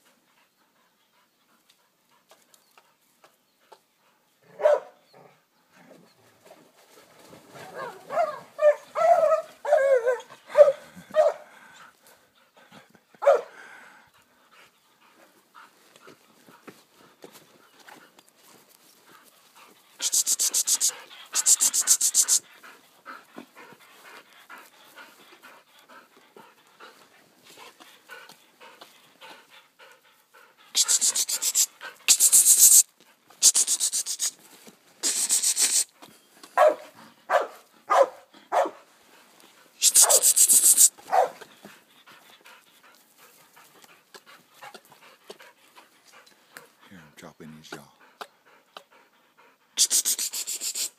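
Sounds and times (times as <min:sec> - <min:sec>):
dog barking: 0:04.5 - 0:05.0, 0:07.6 - 0:11.5, 0:13.2 - 0:13.6, 0:36.6 - 0:38.8, 0:39.8 - 0:41.4
dog panting: 0:11.0 - 0:50.9.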